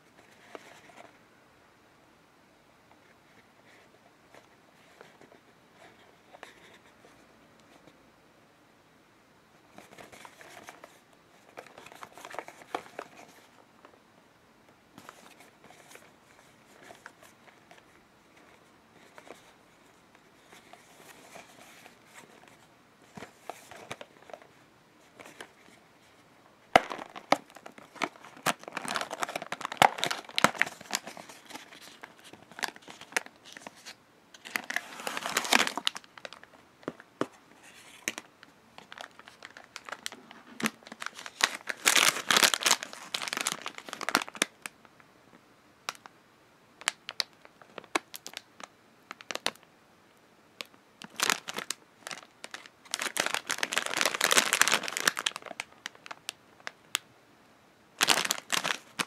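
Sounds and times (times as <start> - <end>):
plastic bag crinkling: 26.7 - 37.0, 37.6 - 44.7, 46.8 - 48.5, 49.1 - 49.6, 51.0 - 57.0, 58.0 - 59.0.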